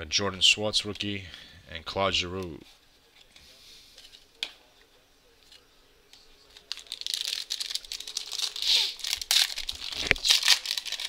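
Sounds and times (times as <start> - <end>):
foil wrapper crinkling and tearing: 6.4 - 11.0.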